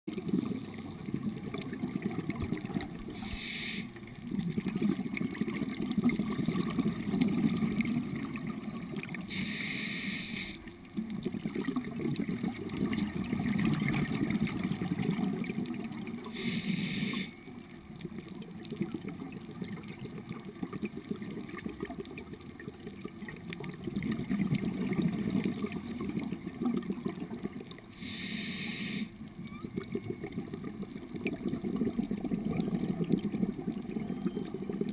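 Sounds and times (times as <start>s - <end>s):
underwater bubbling rumble: 0.1s - 9.6s, 10.3s - 28.1s, 29.1s - 34.9s
regulator inhale hiss: 3.1s - 4.0s, 9.3s - 10.7s, 16.3s - 17.4s, 27.9s - 29.2s.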